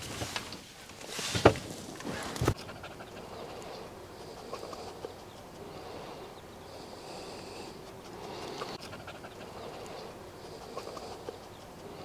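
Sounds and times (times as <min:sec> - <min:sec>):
faint bird calls: 0:02.0 - 0:12.0
dog panting and snuffling: 0:02.3 - 0:05.6, 0:07.8 - 0:12.0.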